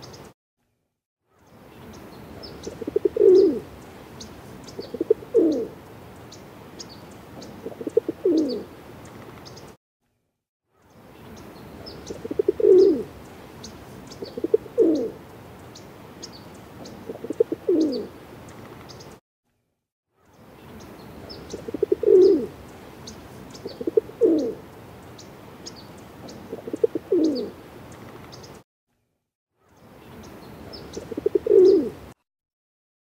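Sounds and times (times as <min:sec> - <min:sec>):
small birds chirping: 0:00.0 - 0:00.4, 0:01.3 - 0:09.8, 0:10.7 - 0:19.2, 0:20.2 - 0:29.0, 0:29.6 - 0:31.9
pigeons cooing: 0:02.4 - 0:05.8, 0:07.4 - 0:08.7, 0:11.8 - 0:15.2, 0:16.8 - 0:18.2, 0:21.3 - 0:24.7, 0:26.2 - 0:27.6, 0:30.8 - 0:32.2.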